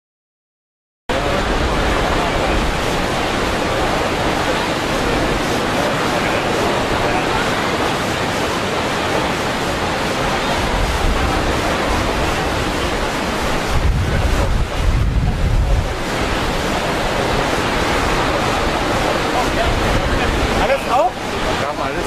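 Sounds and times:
waterfall rushing: 1.1 - 22.0
wind buffeting microphone: 10.0 - 21.6.

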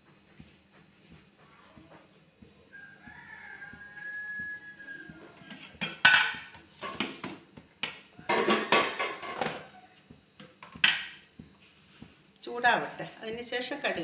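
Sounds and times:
kitchenware clattering: 5.5 - 7.4, 8.3 - 9.7, 10.7 - 11.2.

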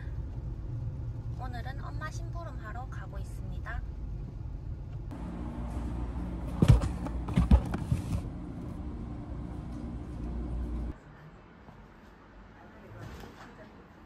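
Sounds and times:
road and engine rumble: 0.0 - 11.0.

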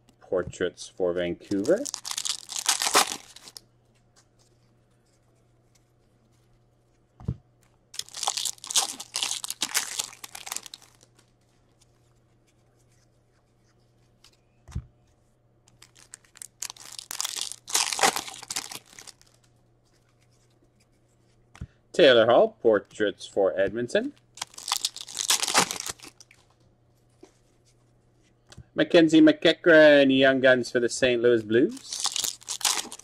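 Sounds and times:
foil wrappers torn and crinkled: 1.5 - 3.6, 8.0 - 11.1, 15.7 - 19.4, 24.4 - 26.4, 31.8 - 33.0.

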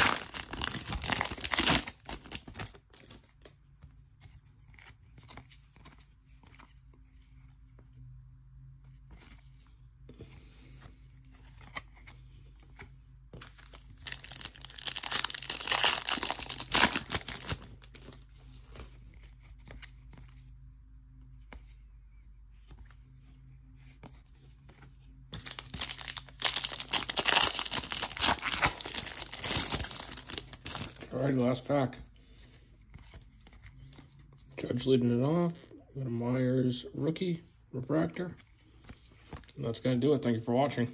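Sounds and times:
foil wrapper tearing and crinkling: 0.0 - 3.1, 14.0 - 18.1, 25.4 - 31.1
faint card handling: 0.0 - 8.0, 8.7 - 35.8, 37.6 - 40.2.

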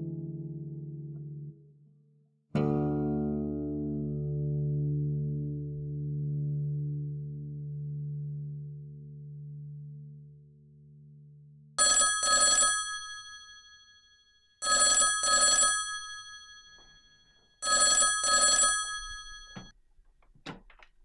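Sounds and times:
telephone bell ringing: 11.8 - 19.7.

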